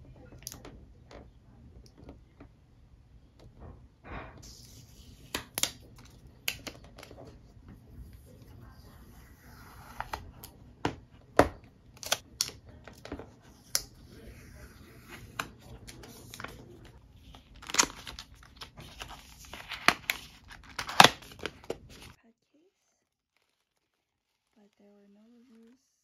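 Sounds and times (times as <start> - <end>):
plastic film crinkling and peeling: 11.9 - 22.2, 22.9 - 26.0.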